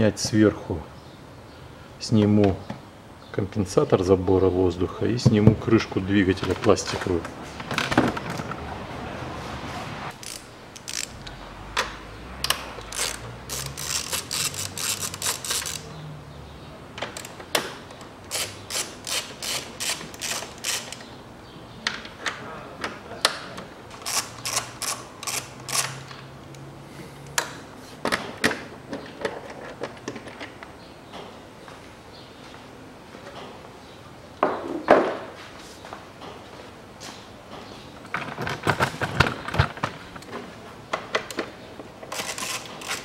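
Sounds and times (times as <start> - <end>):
ratchet wrench clicking: 10.2 - 11.3, 12.4 - 15.9, 18.3 - 21.0, 24.0 - 26.0, 42.1 - 43.0.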